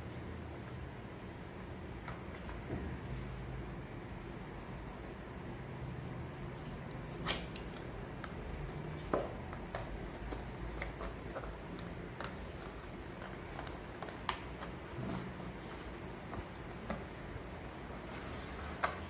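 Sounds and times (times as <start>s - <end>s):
cardboard box sliding and rubbing: 18.0s - 19.0s.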